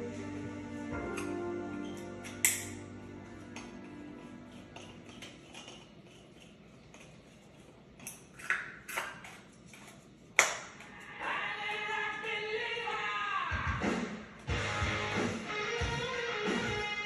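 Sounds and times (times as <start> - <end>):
music: 0.0 - 5.2, 11.2 - 17.0.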